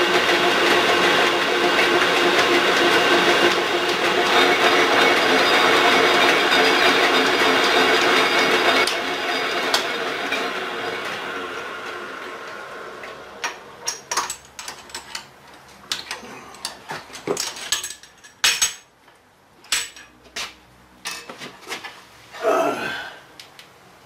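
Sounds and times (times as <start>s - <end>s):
metal tools clinking on metal: 13.9s - 18.9s, 19.7s - 20.2s.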